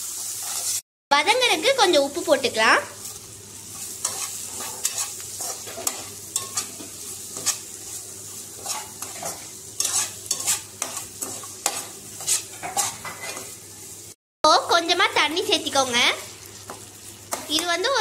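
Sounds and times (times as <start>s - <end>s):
spatula scraping pan: 0.0s - 0.8s, 2.9s - 13.6s
onions sizzling in pan: 0.0s - 18.0s.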